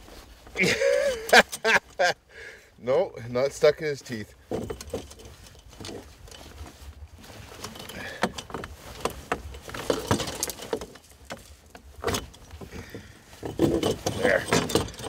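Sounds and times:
metal trap clinking and rattling: 0:09.5 - 0:11.2, 0:13.4 - 0:15.0.

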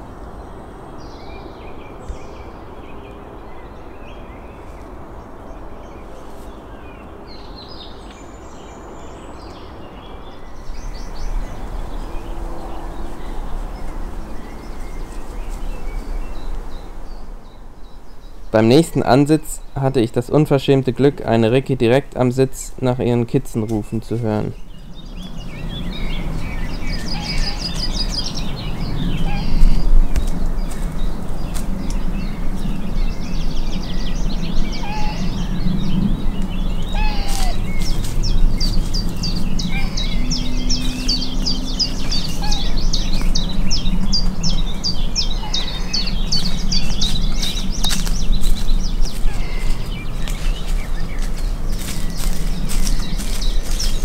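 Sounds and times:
birds singing and chirping: 0:00.0 - 0:54.0
steady low rumble: 0:00.0 - 0:54.0
deer high calls: 0:36.9 - 0:37.7, 0:42.0 - 0:42.9.

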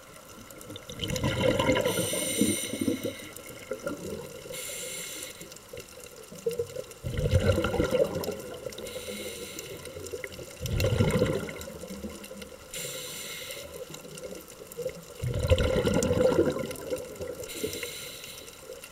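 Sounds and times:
bubbling rush on exhale: 0:00.7 - 0:05.6, 0:07.0 - 0:14.4, 0:15.2 - 0:18.9
regulator hiss on inhale: 0:01.8 - 0:03.7, 0:04.4 - 0:05.8, 0:08.6 - 0:10.4, 0:12.6 - 0:14.4, 0:17.3 - 0:18.9.

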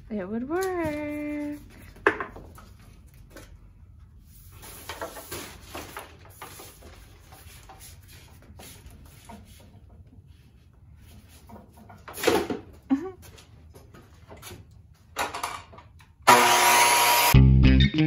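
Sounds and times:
tools and lumber knocking: 0:11.2 - 0:12.8.

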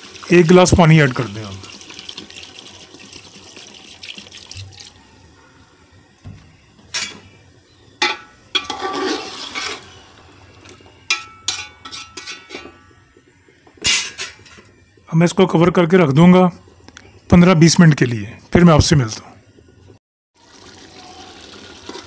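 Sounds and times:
water pouring into metal pot: 0:00.0 - 0:05.3, 0:07.9 - 0:14.8, 0:20.4 - 0:22.0
spatula scraping pot: 0:08.5 - 0:10.1.

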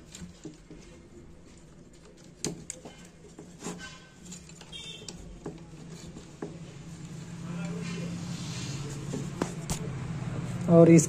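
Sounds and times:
clicks of handling wires: 0:00.0 - 0:07.2.

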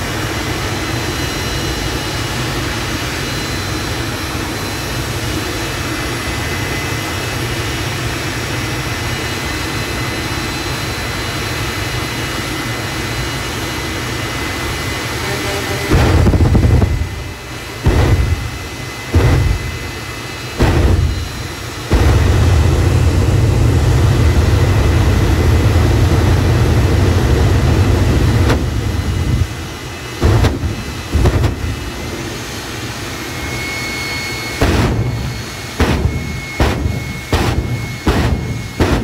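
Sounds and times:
jet engine running: 0:00.0 - 0:39.0
afterburner blasts: 0:15.5 - 0:32.6, 0:34.4 - 0:39.0.

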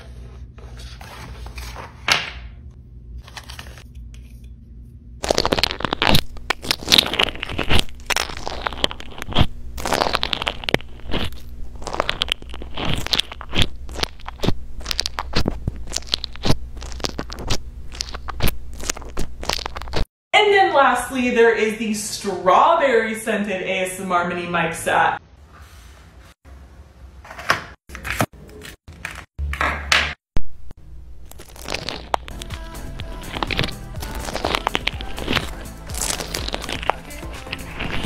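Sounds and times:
crunchy slime crackling and popping: 0:05.2 - 0:20.1, 0:31.2 - 0:38.0.

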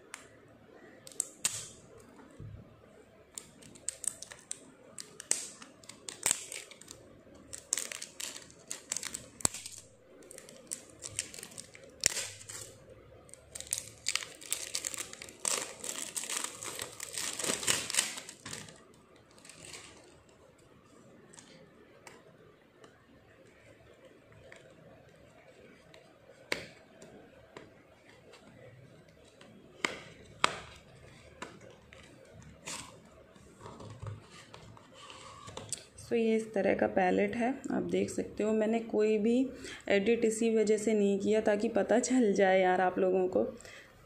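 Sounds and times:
plastic wrap crinkling: 0:03.3 - 0:22.3.

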